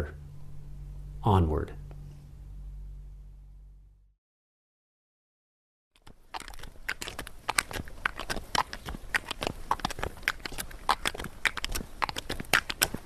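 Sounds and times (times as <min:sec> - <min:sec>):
mule hooves on gravel: 0:06.0 - 0:13.0.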